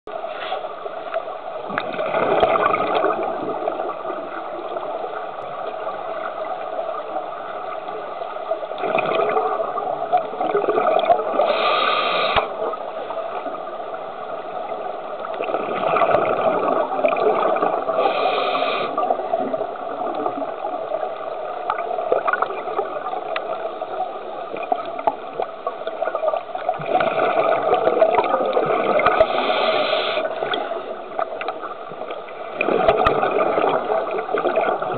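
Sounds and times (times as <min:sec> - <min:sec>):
exhaled bubbles gushing: 0:01.6 - 0:07.0, 0:08.6 - 0:11.7, 0:15.2 - 0:34.9
regulator inhalation hiss: 0:11.4 - 0:12.5, 0:18.0 - 0:19.0, 0:29.2 - 0:30.3.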